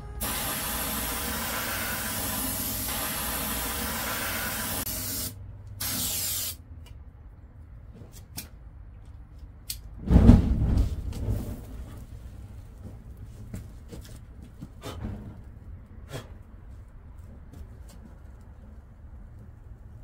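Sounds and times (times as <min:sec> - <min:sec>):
aerosol can spraying hiss: 0:00.2 - 0:06.6.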